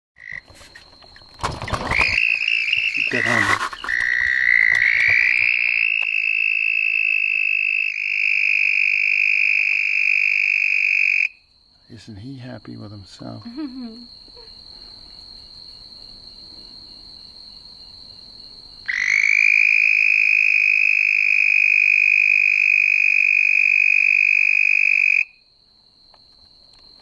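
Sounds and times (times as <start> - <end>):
toad trilling call: 1.7 - 11.4, 18.9 - 21.6.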